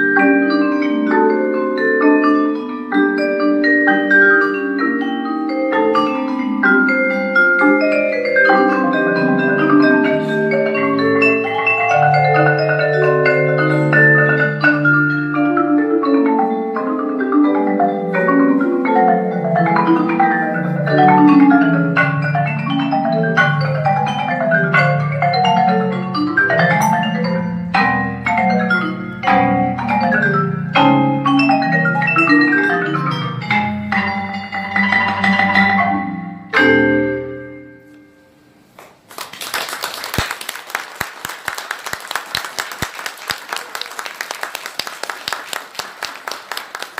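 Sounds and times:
marimba and vibraphone tango: 0.0s - 38.8s
audience applause: 39.1s - 46.9s.

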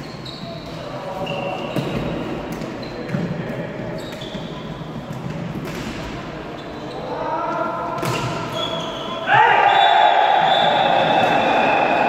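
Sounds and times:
shoe squeaks on court: 0.0s - 3.2s, 4.0s - 4.9s, 6.5s - 7.1s, 8.0s - 9.2s
players shouting: 8.6s - 12.0s.

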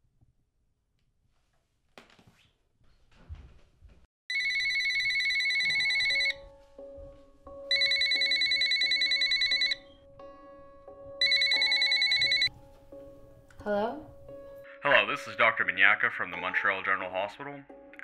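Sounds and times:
telephone ringing electronic trill: 4.3s - 6.4s, 7.7s - 10.0s, 11.2s - 12.5s
soft music score: 6.4s - 7.7s, 9.8s - 18.0s.

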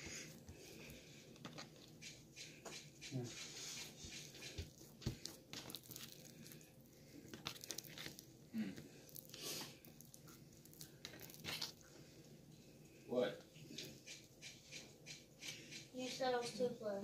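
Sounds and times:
hands rolling dough on wood: 0.0s - 12.8s
crinkly rustles: 3.4s - 12.2s.

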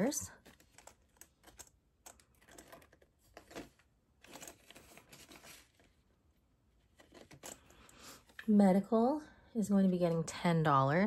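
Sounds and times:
plastic crinkling: 0.3s - 6.0s
paper banknote rustling: 0.4s - 6.0s.

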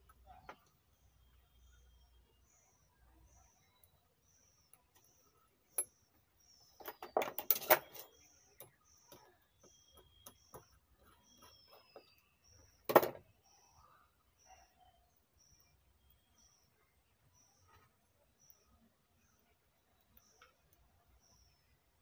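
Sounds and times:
bird chirping faintly: 0.0s - 22.0s
tools rattling: 6.8s - 8.1s.

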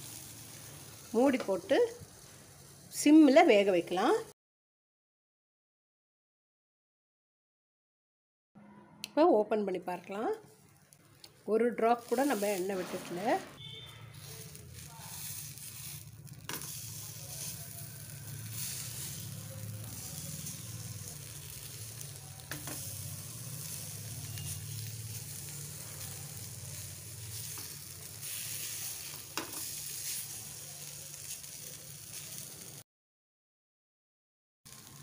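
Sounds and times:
cutlets sizzling on a hot pan: 0.0s - 4.3s, 10.5s - 32.8s, 34.7s - 35.0s
spatula tapping pan: 22.5s - 22.8s.

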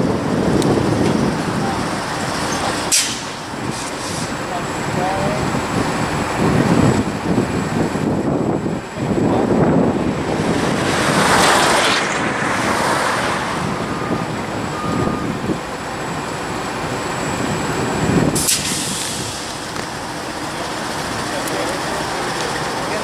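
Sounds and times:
diesel locomotive idling: 0.0s - 12.5s, 13.5s - 23.0s
road traffic: 0.0s - 23.0s
air hiss: 2.9s - 4.4s, 18.4s - 19.6s
vehicle passing: 9.8s - 14.8s.

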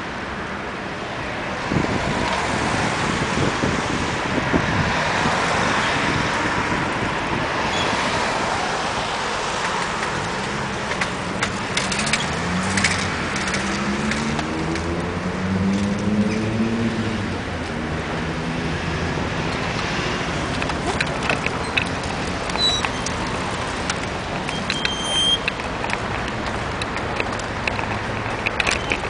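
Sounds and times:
road noise: 0.0s - 29.0s
short high squeaks: 7.7s - 8.0s, 20.8s - 23.3s, 24.5s - 25.5s
car engine pulling away: 7.9s - 29.0s.

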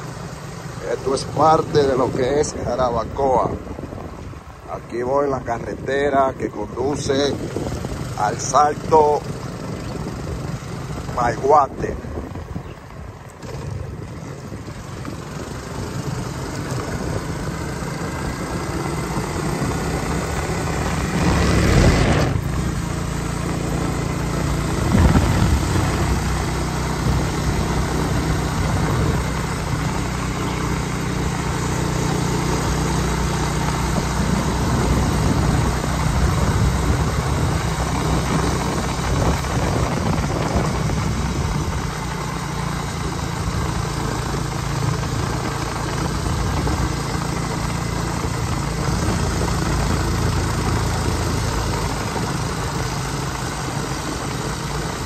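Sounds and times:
road and wind noise: 0.0s - 55.0s
vehicle engine running: 0.0s - 55.0s.

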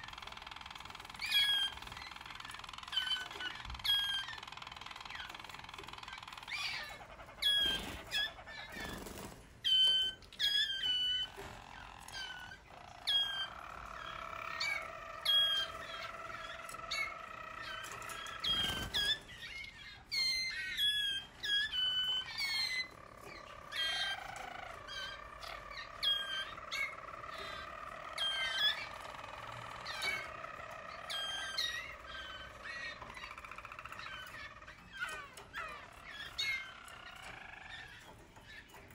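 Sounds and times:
canaries chirping and singing: 0.0s - 38.9s.

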